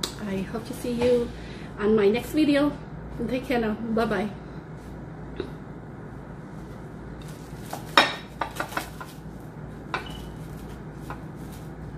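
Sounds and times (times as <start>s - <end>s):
dishes clinking on a counter: 7.9s - 9.0s, 9.9s - 10.4s.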